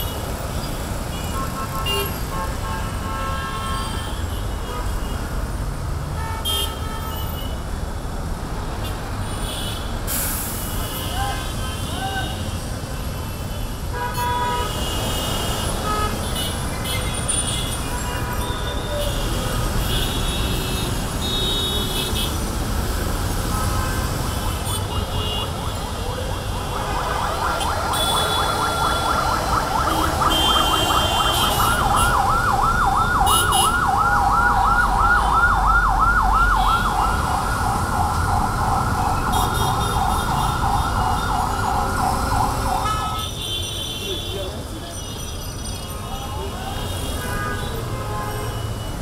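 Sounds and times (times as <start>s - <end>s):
road traffic noise: 0.0s - 49.0s
emergency vehicle siren yelping: 24.6s - 43.2s.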